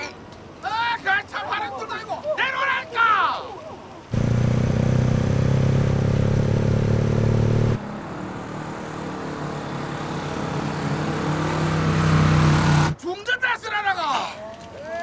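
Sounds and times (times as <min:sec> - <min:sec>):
motorcycle engine running: 0:04.2 - 0:07.8.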